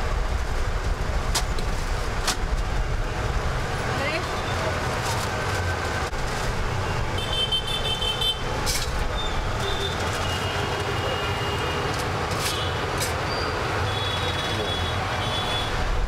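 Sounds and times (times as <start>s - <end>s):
low rumble of engines: 0.0s - 16.0s.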